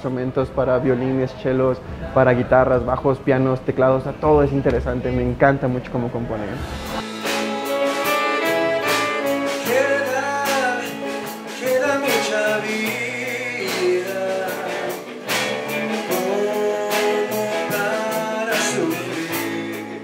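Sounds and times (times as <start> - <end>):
live band with steady beat: 6.6 - 20.0
man singing into a microphone: 9.6 - 20.0.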